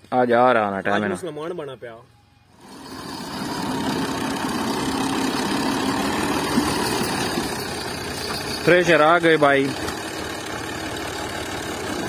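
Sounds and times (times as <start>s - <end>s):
tractor diesel engine running: 2.5s - 12.0s.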